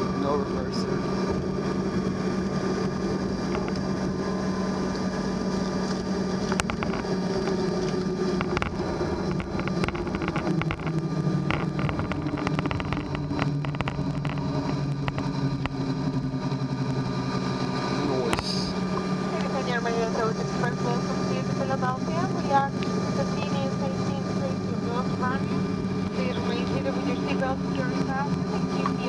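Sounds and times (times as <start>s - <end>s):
jet engine rumble: 0.0s - 29.0s.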